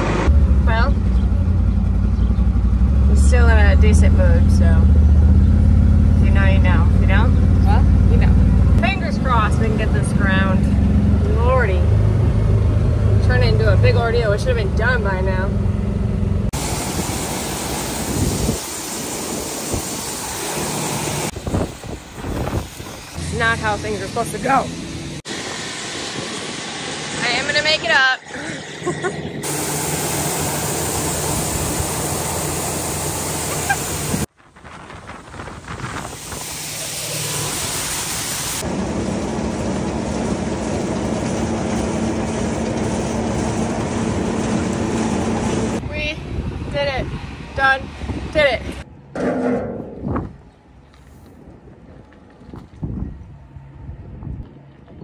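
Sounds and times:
grinder-mixer rushing noise: 16.5 - 34.3, 35.9 - 45.8.

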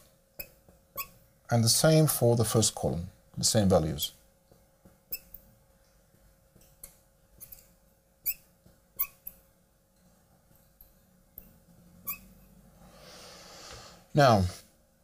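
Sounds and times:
marker squeaking on glass: 0.4 - 1.2, 5.1 - 5.5, 7.4 - 9.4, 12.0 - 12.4.

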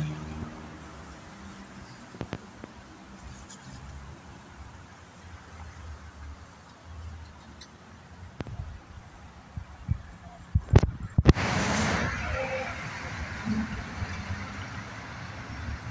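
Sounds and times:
passing cars rumbling: 0.0 - 9.5, 10.2 - 15.9
tyres hissing on wet pavement: 11.3 - 15.9.

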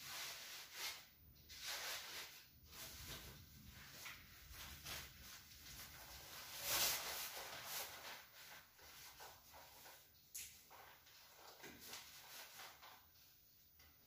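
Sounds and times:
cloth bag rustling: 1.8 - 10.0.

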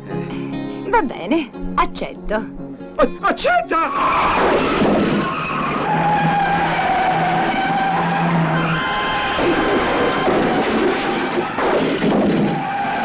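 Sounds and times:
tyres squealing: 3.0 - 13.0
car engines running hard: 4.0 - 13.0.

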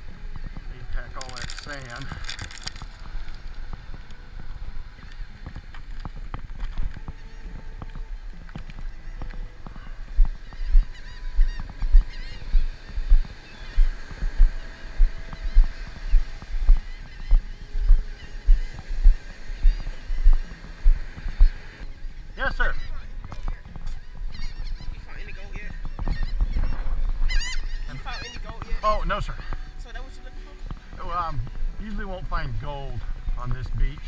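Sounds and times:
footsteps in sand: 0.0 - 21.8
wind: 0.0 - 34.0.

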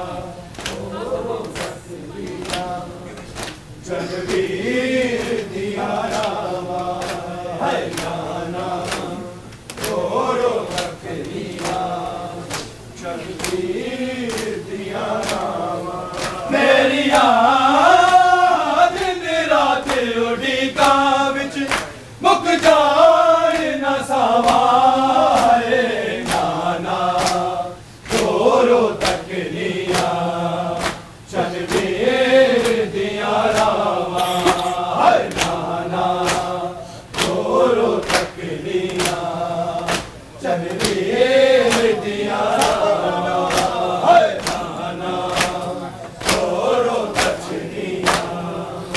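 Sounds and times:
men chanting in unison: 0.0 - 48.9
hands slapping chests: 33.6 - 35.6.

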